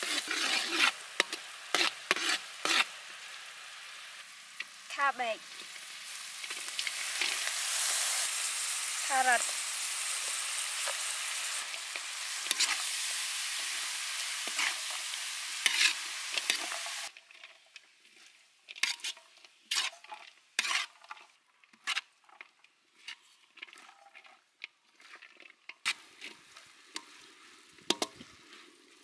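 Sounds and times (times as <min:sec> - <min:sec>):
metal spatula scraping a wok: 0:00.0 - 0:04.8, 0:05.5 - 0:22.4
vegetables sizzling in a wok: 0:00.0 - 0:29.0.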